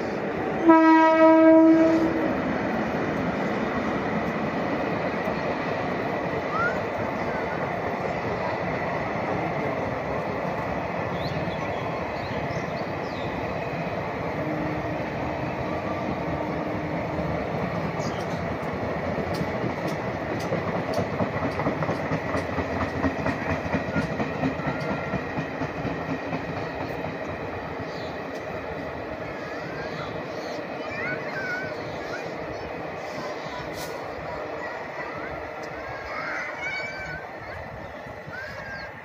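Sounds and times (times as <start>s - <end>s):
train wheels rumbling on rail: 0.0s - 39.0s
clickety-clack over rail joints: 16.0s - 39.0s.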